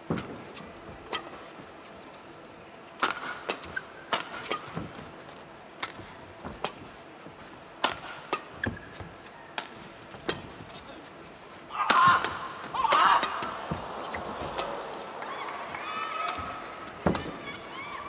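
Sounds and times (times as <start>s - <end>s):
rackets hitting shuttlecock: 1.0s - 1.5s, 3.0s - 5.0s, 5.8s - 7.0s, 7.8s - 10.6s, 11.8s - 17.4s
shoes squeaking on court: 8.5s - 9.4s.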